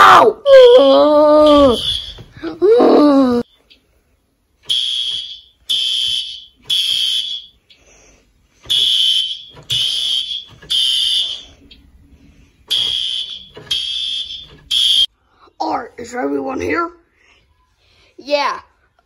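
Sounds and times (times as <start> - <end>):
fire alarm high-pitched beeps: 1.5 - 2.3, 4.7 - 7.7, 8.7 - 11.7, 12.7 - 15.1.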